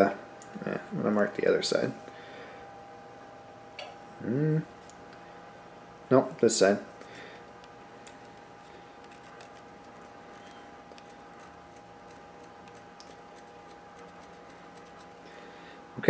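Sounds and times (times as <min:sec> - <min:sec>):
faint steady hum: 0:00.0 - 0:16.0
crayon ticking and scraping on metal: 0:09.0 - 0:15.2.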